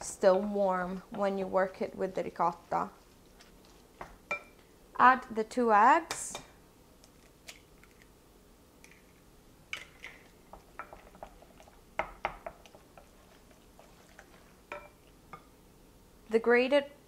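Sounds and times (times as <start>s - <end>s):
soft squishing of mixture: 0.0s - 4.7s, 9.8s - 15.4s
spoon tapping glass bowl: 14.7s - 15.0s.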